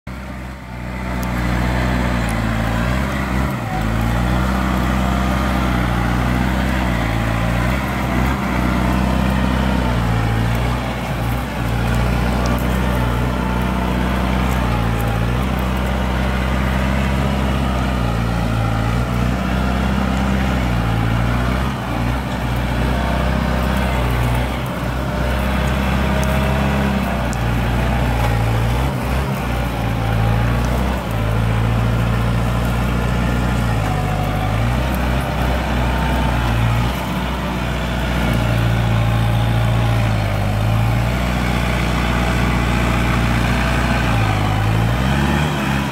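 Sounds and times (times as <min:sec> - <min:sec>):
tractor diesel engine running: 0:00.0 - 0:45.9.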